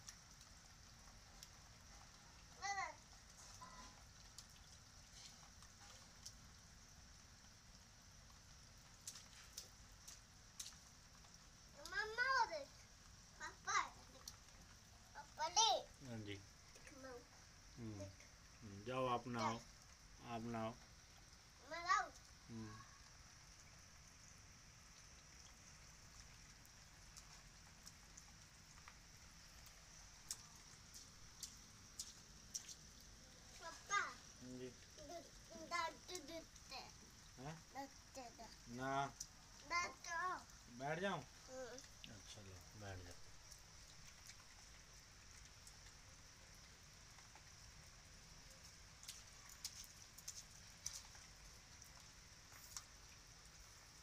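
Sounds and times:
raindrop taps: 0.0 - 6.6, 7.7 - 15.8, 16.7 - 17.4, 25.0 - 40.6, 41.2 - 53.2
light rain on concrete: 0.0 - 54.0.

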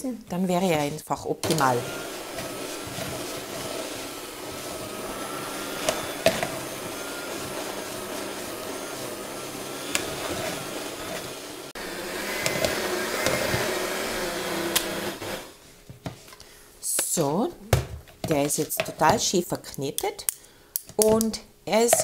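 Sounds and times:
electric mixer kneading dough: 0.8 - 15.6.

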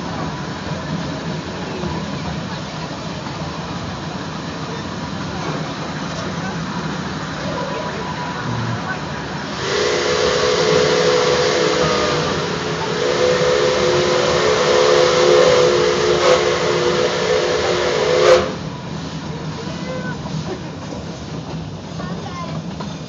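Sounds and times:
train running: 0.0 - 23.0
steam hiss: 6.6 - 22.0
steam locomotive whistle: 9.4 - 18.8.

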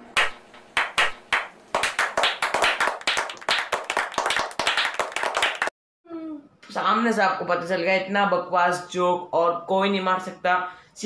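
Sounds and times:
people clapping: 0.0 - 5.7.

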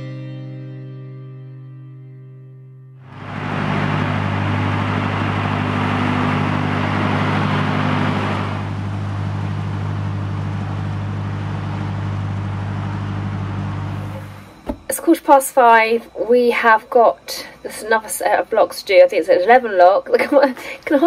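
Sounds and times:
motorway traffic noise: 3.1 - 14.9
diesel engine humming: 3.1 - 18.6.

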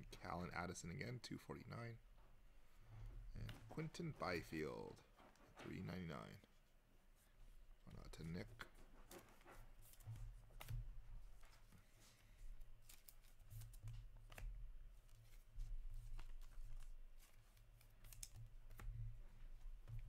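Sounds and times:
plastic card sleeves clicking: 16.2 - 18.9.

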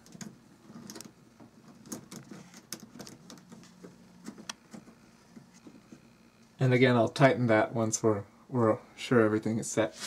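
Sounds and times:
faint clicks and rustles: 0.0 - 6.6.

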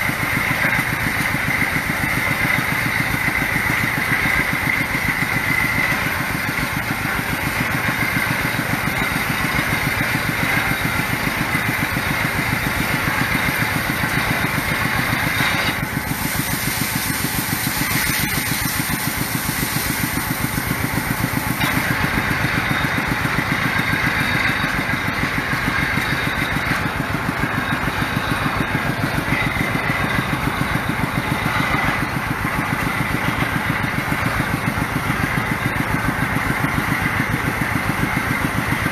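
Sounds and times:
water and mud spraying hiss: 0.0 - 22.8
drilling rig engine pulsing: 0.0 - 38.9.

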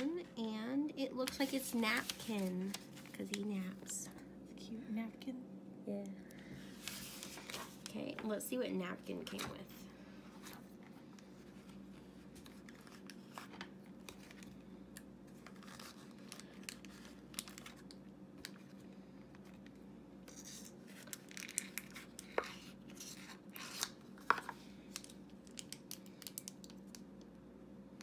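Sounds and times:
packet crinkling and tearing: 15.3 - 18.9, 20.3 - 24.0.

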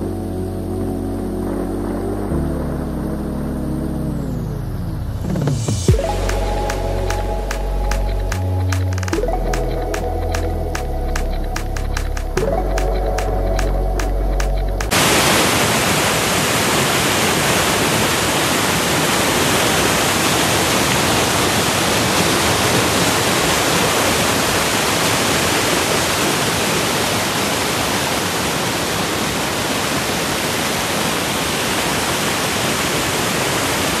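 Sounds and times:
whitewater rapids rushing: 14.9 - 34.0.

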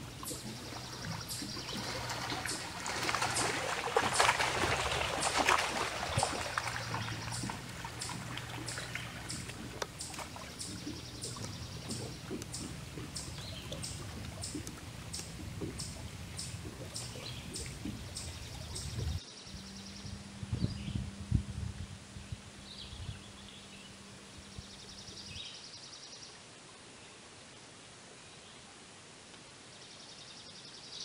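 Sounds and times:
waves lapping against a boat: 0.0 - 25.4.

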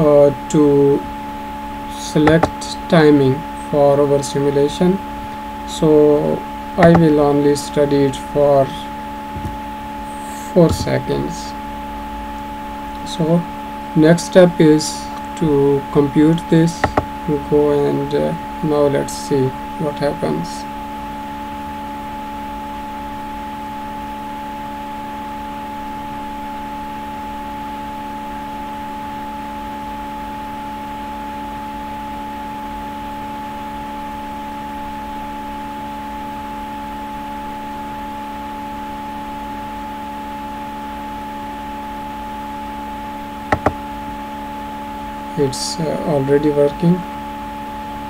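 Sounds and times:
steady tonal hum: 0.0 - 30.2.

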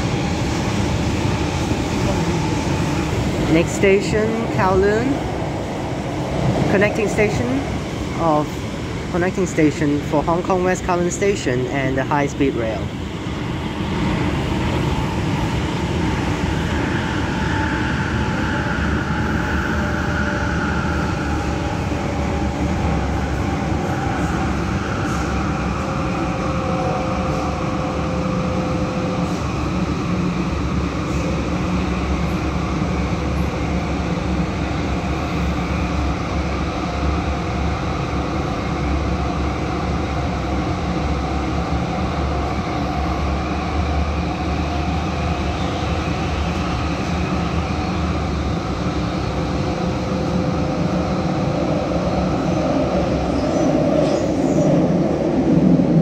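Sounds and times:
train wheels rumbling on rail: 12.7 - 56.0.

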